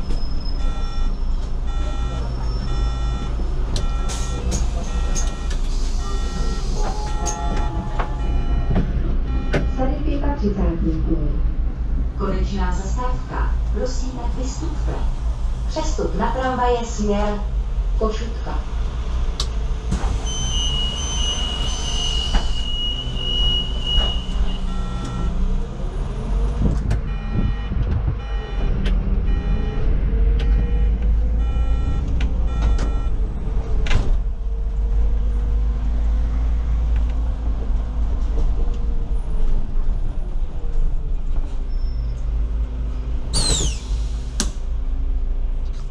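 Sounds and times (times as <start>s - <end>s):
bus engine rumble: 0.0s - 45.9s
steady high beep: 0.6s - 9.9s, 20.3s - 25.3s, 29.3s - 33.2s.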